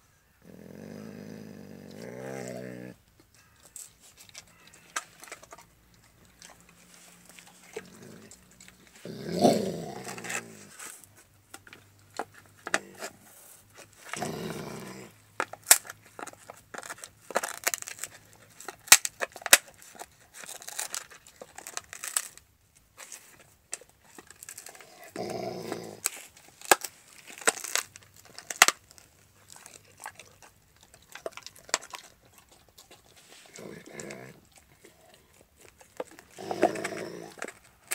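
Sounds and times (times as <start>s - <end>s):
dog low growl: 0.4s - 3.0s, 7.4s - 10.8s, 14.0s - 15.2s, 24.8s - 26.1s, 32.4s - 35.3s, 36.2s - 37.6s
dog chewing bone: 3.4s - 10.8s, 13.8s - 22.4s, 23.0s - 37.9s.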